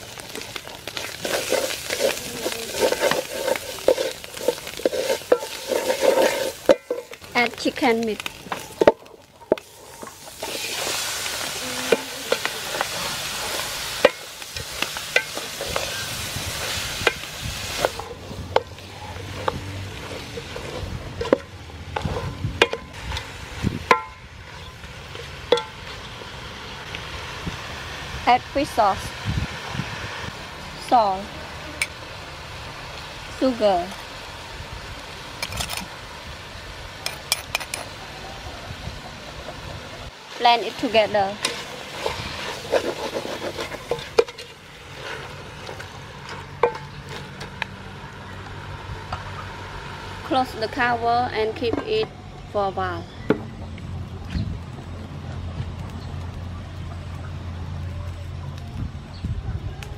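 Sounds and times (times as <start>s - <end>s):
spatula stirring in pot: 0.9s - 7.2s, 41.4s - 45.8s
wooden spoon stirring thick paste: 41.6s - 45.8s.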